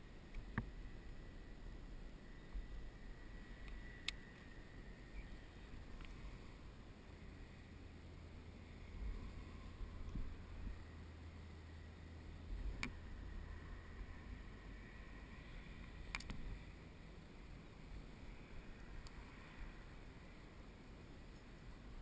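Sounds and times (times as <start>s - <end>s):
faint low rumble: 0.0s - 22.0s
faint tick: 3.6s - 4.5s, 6.0s - 6.2s, 15.8s - 16.4s
sharp clicks: 15.8s - 16.4s.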